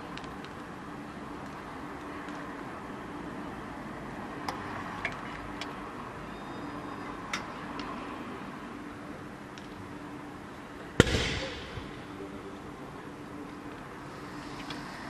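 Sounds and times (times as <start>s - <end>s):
fire pops and cracks: 11.0s - 11.8s.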